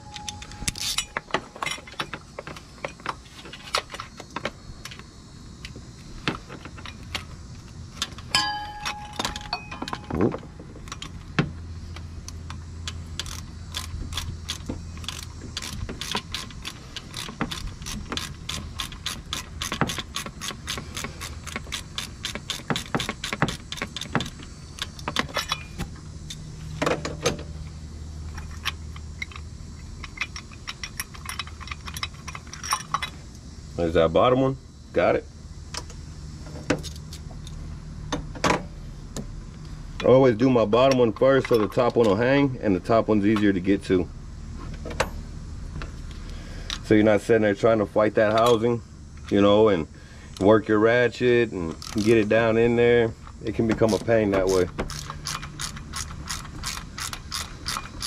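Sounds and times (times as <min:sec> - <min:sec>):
hand ratchet clicking: 0:00.1 - 0:02.1, 0:12.2 - 0:26.4, 0:28.4 - 0:33.2, 0:51.7 - 0:52.5, 0:53.2 - 0:58.0.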